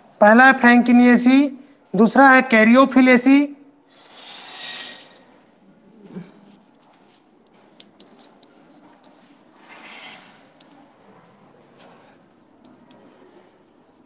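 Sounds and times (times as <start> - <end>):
chalk scratching on blackboard: 6.3 - 14.0
chalk tapping: 6.5 - 10.9, 11.6 - 14.0.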